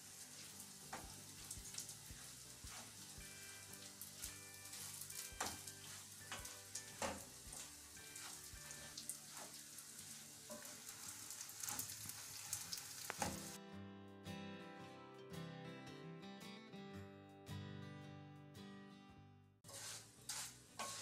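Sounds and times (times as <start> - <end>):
rice sizzling in hot oil: 0.0 - 13.6, 19.7 - 21.0
wooden spoon scraping a pot: 0.4 - 11.9, 19.7 - 21.0.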